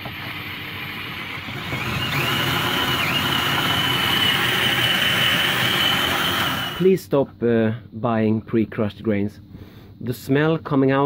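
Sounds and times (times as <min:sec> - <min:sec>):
cordless drill motor whine: 0:00.0 - 0:06.8
grain crunching in a mill: 0:00.0 - 0:06.8.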